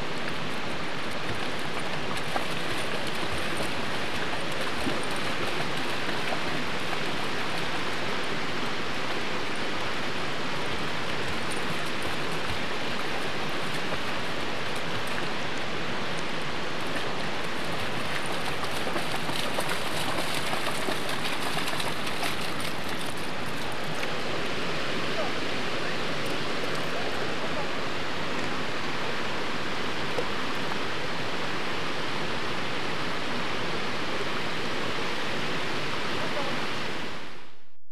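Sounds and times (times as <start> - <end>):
creek water rushing: 0.0 - 37.6
dog splashing through water: 16.9 - 24.2.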